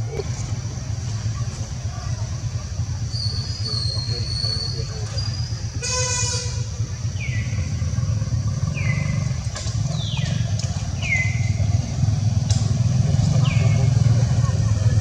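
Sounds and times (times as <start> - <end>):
vehicle engine rumbling: 0.0 - 15.0.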